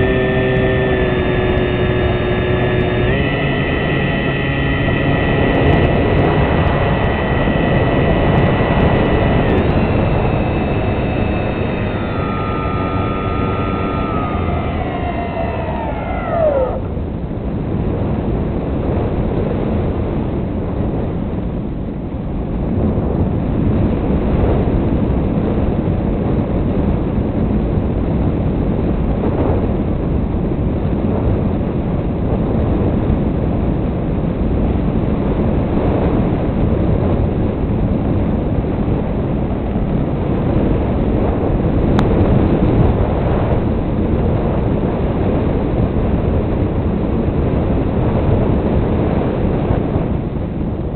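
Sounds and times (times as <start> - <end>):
model plane motor and propeller: 0.0 - 18.1
wind rushing over microphone: 0.0 - 50.9.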